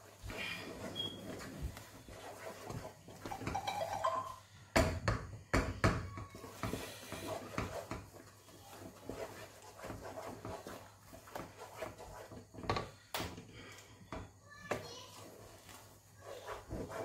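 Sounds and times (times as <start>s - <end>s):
wooden spoon scraping dough in pot: 0.0s - 4.2s, 6.2s - 17.0s.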